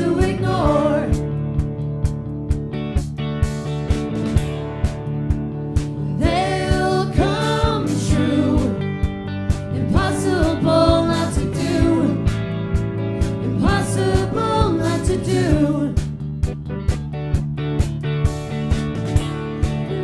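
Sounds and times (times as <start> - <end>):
woman singing lead vocal: 0.0 - 1.3, 6.0 - 12.4, 13.2 - 16.2
pop-rock band playing: 0.0 - 20.0.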